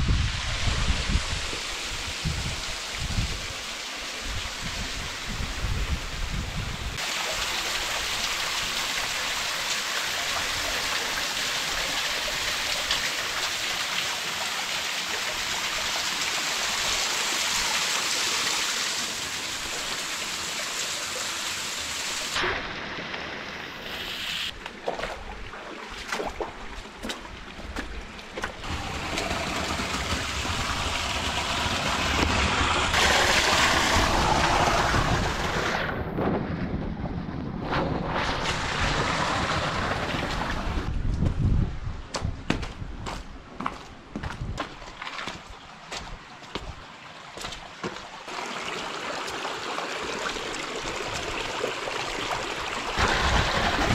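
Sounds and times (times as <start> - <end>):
water pouring down small waterfall: 7.0 - 24.0, 28.6 - 36.0, 38.3 - 40.9, 47.0 - 53.9.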